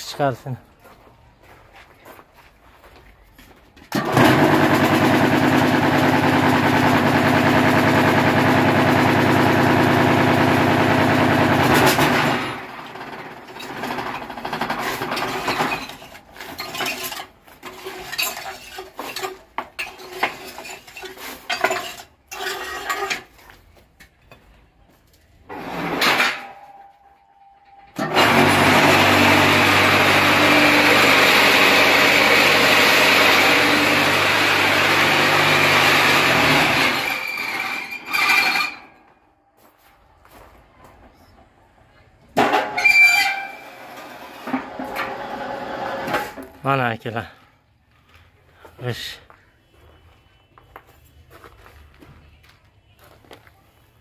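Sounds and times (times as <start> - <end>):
metal clanks and knocks: 13.4 - 23.4, 25.6 - 28.4.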